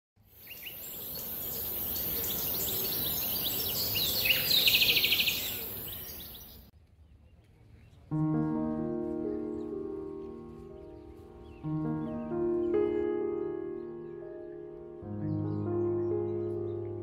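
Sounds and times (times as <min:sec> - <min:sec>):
high insect hiss: 0:00.3 - 0:06.6
small birds chirping: 0:00.3 - 0:08.6
music with held notes: 0:08.1 - 0:17.0.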